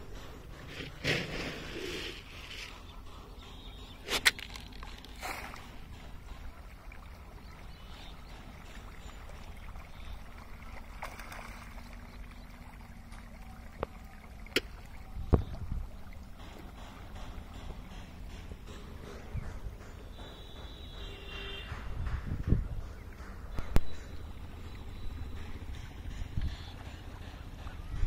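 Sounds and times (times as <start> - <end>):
fish splashing at water surface: 4.0 - 15.5
wind on microphone: 15.1 - 16.0, 21.7 - 23.0.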